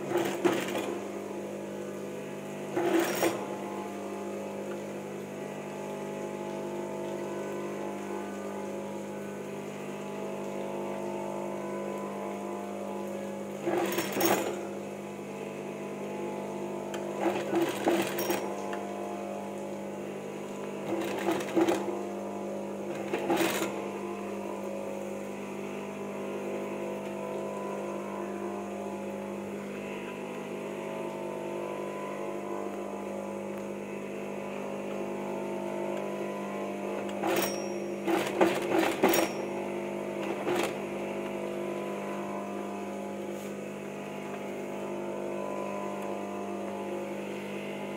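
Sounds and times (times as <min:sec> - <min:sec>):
sewing machine stitching: 0:00.0 - 0:01.2, 0:02.7 - 0:03.6, 0:13.6 - 0:14.8, 0:16.8 - 0:18.8, 0:20.8 - 0:22.1, 0:22.9 - 0:24.1, 0:36.9 - 0:39.5, 0:40.2 - 0:40.8
steady electric hum: 0:00.0 - 0:47.9.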